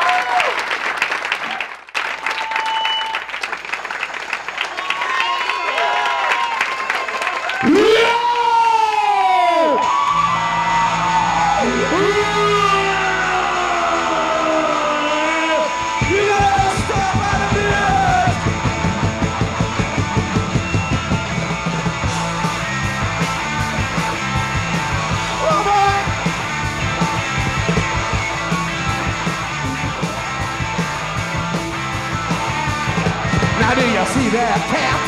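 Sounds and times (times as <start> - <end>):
live punk rock band playing: 9.8 - 35.0.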